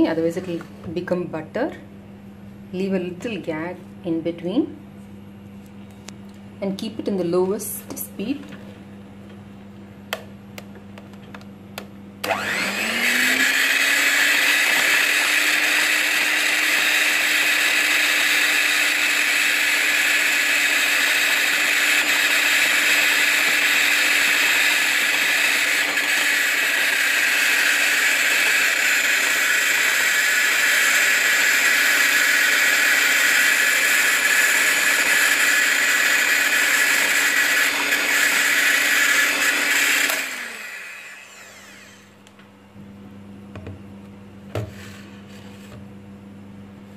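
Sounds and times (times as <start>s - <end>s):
electric hand mixer running: 12.2s - 42.3s.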